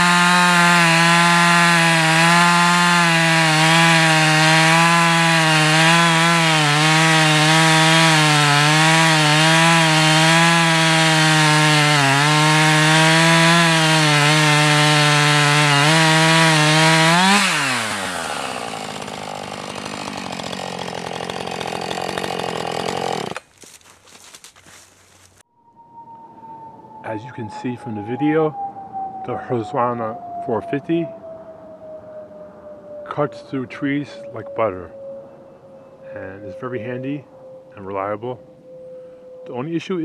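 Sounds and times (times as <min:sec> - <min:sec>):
chainsaw engine idling: 0:00.0 - 0:24.4
chainsaw cutting log: 0:00.0 - 0:25.4.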